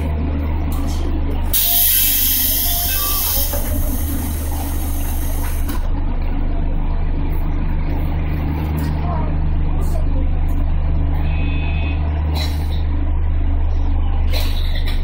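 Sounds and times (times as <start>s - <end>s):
train equipment humming: 0.0s - 15.0s
compressed air hissing: 1.6s - 5.6s.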